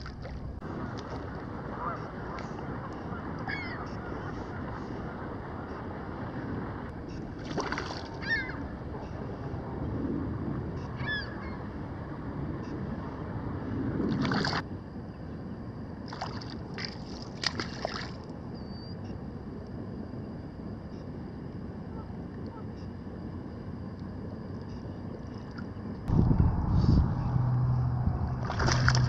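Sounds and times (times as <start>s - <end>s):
water lapping and sloshing: 0.0s - 9.8s, 14.0s - 14.7s, 16.0s - 18.4s, 28.2s - 29.0s
wind on microphone: 0.0s - 14.8s, 26.0s - 29.0s
sharp water splashes: 7.4s - 8.2s, 16.1s - 18.2s, 28.4s - 29.0s.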